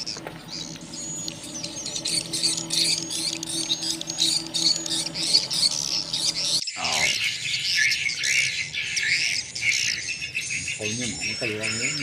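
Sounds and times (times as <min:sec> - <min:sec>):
low steady hum: 0:00.0 - 0:07.3.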